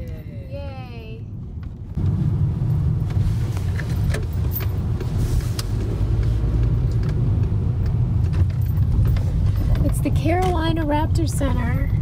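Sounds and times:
car driving low rumble: 0:00.0 - 0:12.0.

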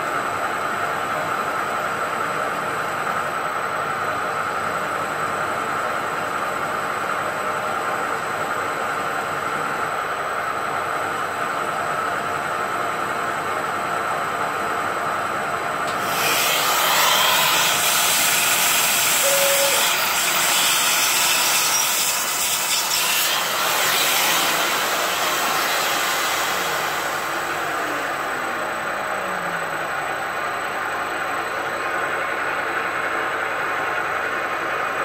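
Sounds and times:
milling machine running: 0:15.9 - 0:35.0
vacuum cleaner hissing: 0:23.3 - 0:29.6.

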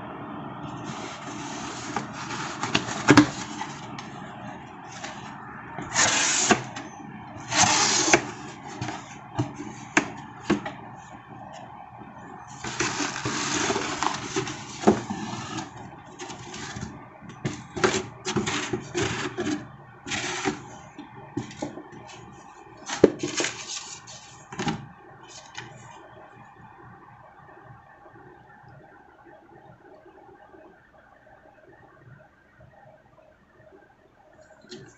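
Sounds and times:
cardboard box rustling and scraping: 0:00.8 - 0:04.0, 0:04.9 - 0:06.8, 0:07.4 - 0:10.8, 0:12.5 - 0:20.8, 0:22.8 - 0:24.8
cardboard flaps folding: 0:00.8 - 0:04.1, 0:04.9 - 0:10.8, 0:12.5 - 0:20.8, 0:21.4 - 0:25.8
paper receipt rustling: 0:00.8 - 0:04.1, 0:04.8 - 0:10.7, 0:12.5 - 0:20.8, 0:22.8 - 0:25.8.

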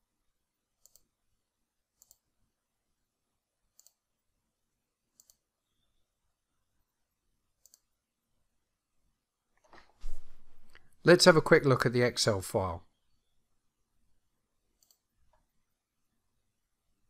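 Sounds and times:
faint computer mouse clicks: 0:00.8 - 0:01.1, 0:02.0 - 0:02.2, 0:03.7 - 0:04.0, 0:05.1 - 0:05.4, 0:07.6 - 0:07.9, 0:14.8 - 0:15.4.

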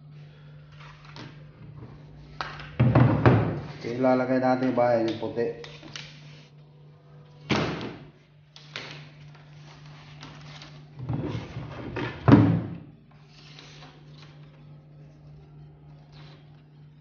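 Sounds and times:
low steady hum: 0:00.0 - 0:17.0
board knocking on workbench: 0:02.8 - 0:03.7.

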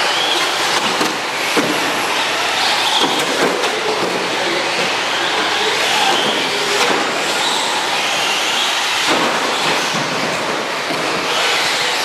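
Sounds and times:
electric toy car drivetrain whine: 0:00.0 - 0:12.0.

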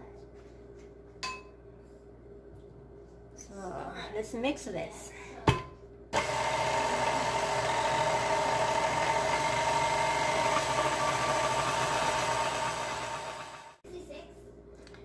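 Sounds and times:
stand mixer motor running: 0:06.2 - 0:13.8.

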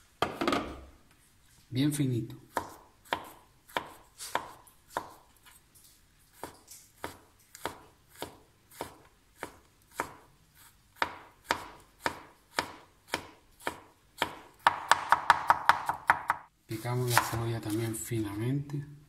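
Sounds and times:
knife chopping on wooden board: 0:02.5 - 0:05.3, 0:06.4 - 0:10.3, 0:11.0 - 0:16.4, 0:17.1 - 0:17.4.

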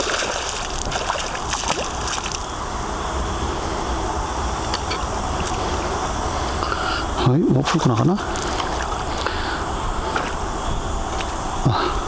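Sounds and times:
water sloshing and splashing: 0:00.0 - 0:02.6, 0:07.6 - 0:09.3.

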